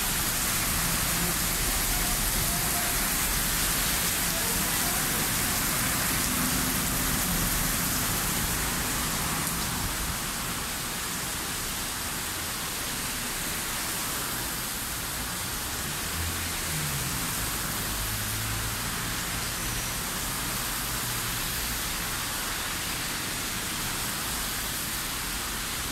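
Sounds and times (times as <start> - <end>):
passing traffic engine hum: 0.0 - 10.2, 15.7 - 21.8
heavy rain on street: 0.0 - 25.9.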